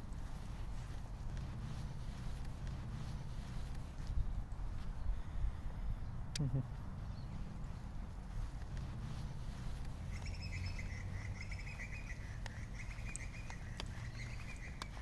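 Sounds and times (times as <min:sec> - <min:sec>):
steady low rumble: 0:00.0 - 0:15.0
bird trilling: 0:10.0 - 0:15.0
faint ticks: 0:12.1 - 0:15.0.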